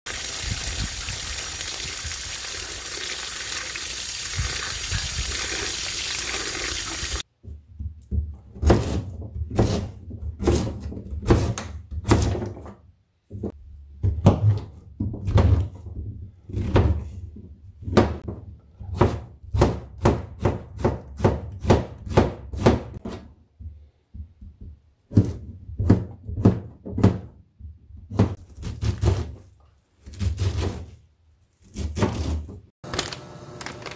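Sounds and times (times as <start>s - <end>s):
water pouring into metal bowl: 0.1s - 7.2s
knife chopping on cutting board: 8.6s - 12.4s, 18.9s - 23.2s.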